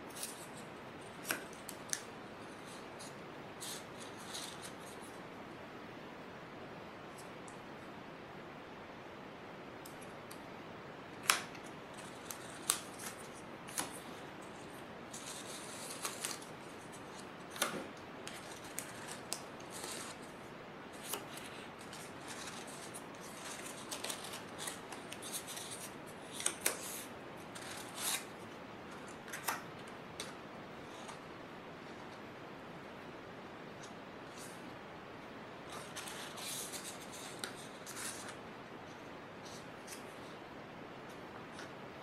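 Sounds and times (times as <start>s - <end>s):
paper rustling: 11.2s - 20.3s, 20.9s - 28.3s, 35.7s - 38.4s.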